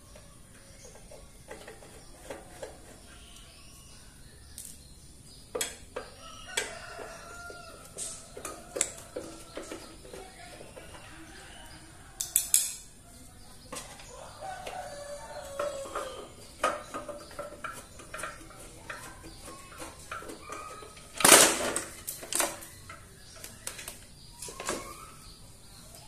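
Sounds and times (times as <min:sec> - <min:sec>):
rooster crowing: 0:06.2 - 0:09.2, 0:14.1 - 0:16.4.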